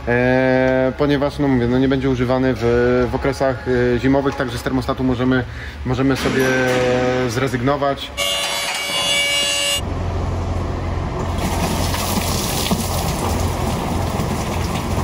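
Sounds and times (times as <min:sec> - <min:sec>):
steady multi-pitch tone: 0:08.1 - 0:10.0
coolant draining hiss: 0:11.4 - 0:15.0.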